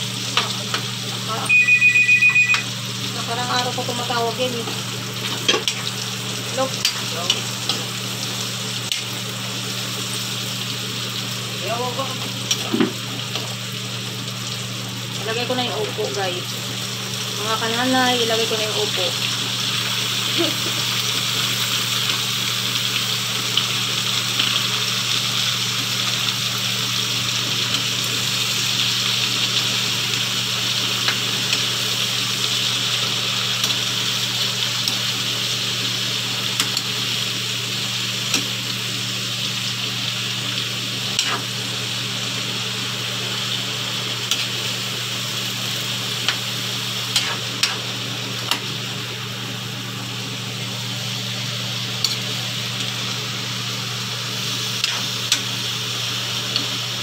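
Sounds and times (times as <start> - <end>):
food sizzling in a wok: 0.0 - 57.0.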